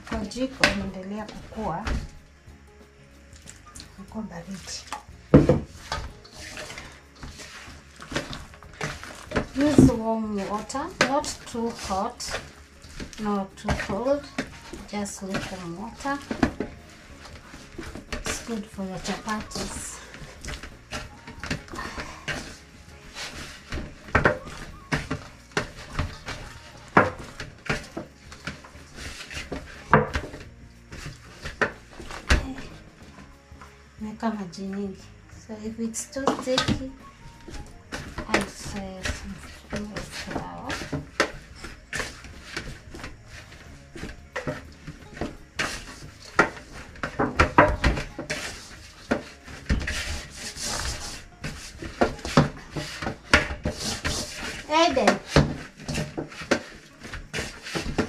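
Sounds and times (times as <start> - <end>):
dough thumping against metal bowl: 0.0 - 2.1, 5.4 - 16.8
dough kneaded by hand: 0.0 - 58.0
hands rubbing dough on metal: 3.4 - 32.9, 37.4 - 58.0.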